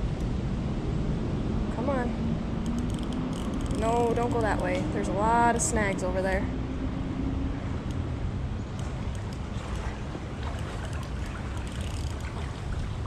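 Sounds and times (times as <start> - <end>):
wind rumble on microphone: 0.0 - 13.0
flowing creek water: 8.8 - 13.0.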